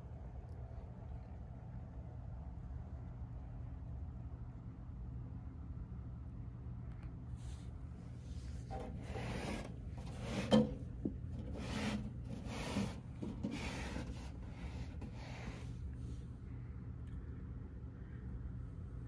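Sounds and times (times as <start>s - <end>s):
rubbing and scraping handling noise: 7.4s - 16.3s.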